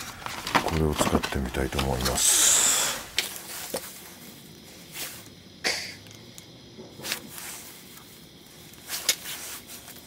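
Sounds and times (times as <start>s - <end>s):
plastic packaging clicks and rustles: 0.0s - 2.2s.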